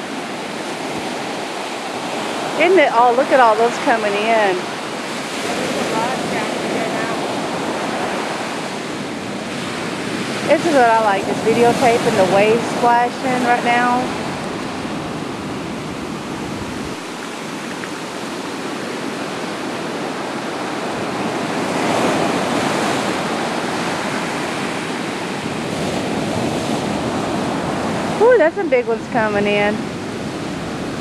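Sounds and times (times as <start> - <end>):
ocean waves breaking on beach: 0.0 - 31.0.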